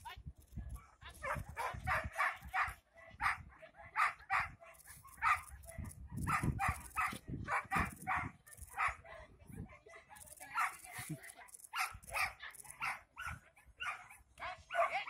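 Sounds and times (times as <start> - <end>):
dog barking high-pitched: 0.8 - 15.0.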